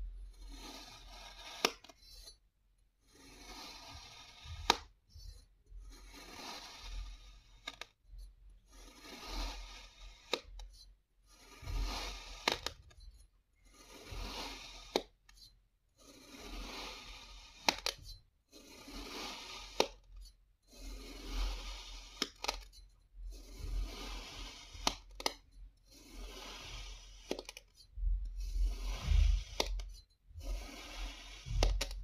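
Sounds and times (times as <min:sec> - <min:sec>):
blade slicing through sand: 0:05.9 - 0:07.8, 0:08.7 - 0:10.5, 0:11.4 - 0:12.7, 0:13.7 - 0:15.1, 0:16.0 - 0:17.9, 0:18.5 - 0:20.0, 0:20.8 - 0:22.4, 0:23.4 - 0:25.0, 0:26.0 - 0:27.4, 0:30.4 - 0:31.6.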